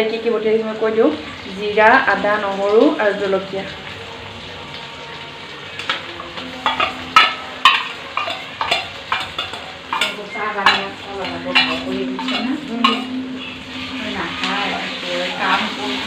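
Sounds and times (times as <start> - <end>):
onions sizzling in oil: 0.0 - 16.0
spoon knocking on wok rim: 6.6 - 13.2.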